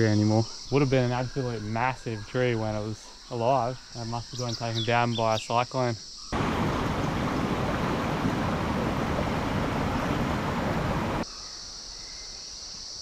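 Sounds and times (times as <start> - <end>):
high insect drone: 0.0 - 13.0
river water rushing: 6.4 - 11.2.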